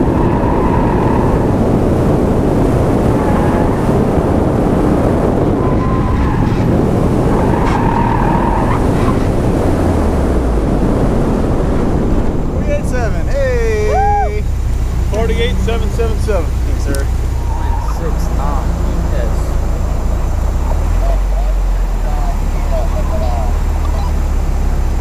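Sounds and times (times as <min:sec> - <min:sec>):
car engine: 0:00.0 - 0:25.0
road and wind noise: 0:00.0 - 0:25.0
tyres squealing: 0:12.8 - 0:21.6.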